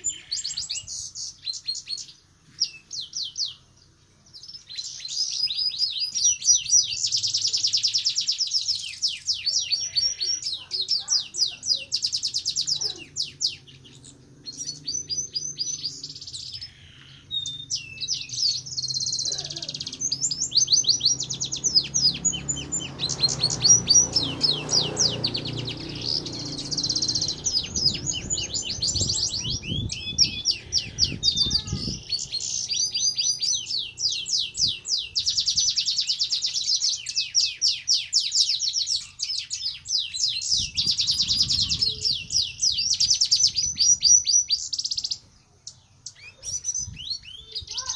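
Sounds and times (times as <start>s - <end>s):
bird twittering song: 0.0s - 47.9s
low rumble: 24.0s - 32.4s.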